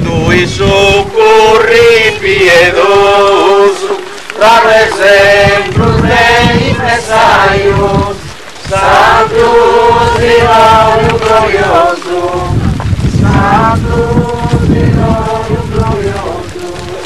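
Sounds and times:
voices singing a hymn: 0:00.0 - 0:17.0
low rumble: 0:05.0 - 0:17.0.

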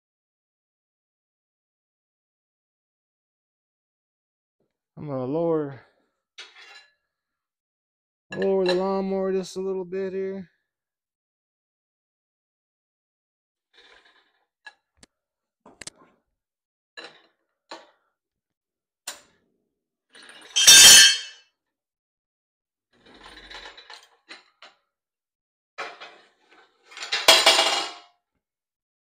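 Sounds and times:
ringing metal clanks: 0:20.6 - 0:21.3.

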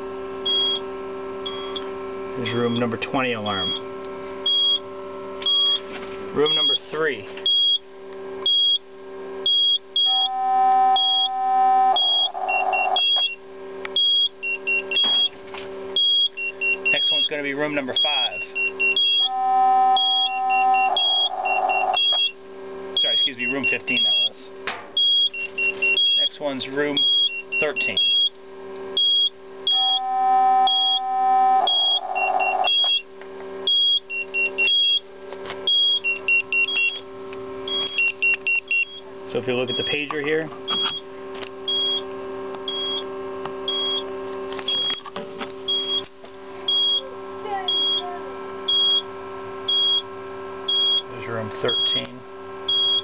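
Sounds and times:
steady buzzing tone: 0:00.0 - 0:53.0
alarm beeping: 0:00.4 - 0:00.8, 0:01.4 - 0:01.8, 0:02.4 - 0:03.8, 0:04.4 - 0:04.8, 0:05.4 - 0:05.8, 0:06.4 - 0:07.8, 0:08.4 - 0:08.8, 0:09.4 - 0:13.4, 0:14.0 - 0:15.4, 0:16.0 - 0:22.4, 0:23.0 - 0:24.4, 0:25.0 - 0:28.3, 0:29.0 - 0:35.0, 0:35.7 - 0:37.0, 0:37.6 - 0:41.1, 0:41.7 - 0:42.0, 0:42.7 - 0:43.1, 0:43.7 - 0:44.1, 0:44.7 - 0:45.1, 0:45.7 - 0:46.1, 0:46.7 - 0:48.1, 0:48.7 - 0:49.1, 0:49.7 - 0:50.1, 0:50.7 - 0:53.0
warbling data signal: 0:09.5 - 0:13.4, 0:16.0 - 0:22.4, 0:23.0 - 0:24.4, 0:29.0 - 0:33.1.

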